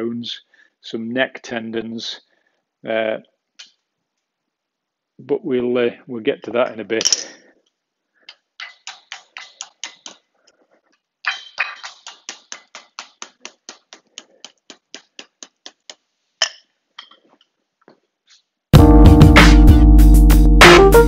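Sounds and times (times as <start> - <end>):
small hammer tapping wire: 8.3 - 10.3, 11.2 - 17.2.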